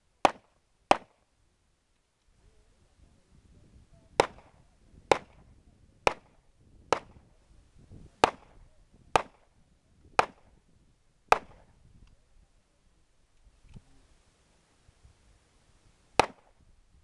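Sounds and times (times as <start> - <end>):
handgun shots with echo: 10.2 - 10.5, 11.3 - 11.7.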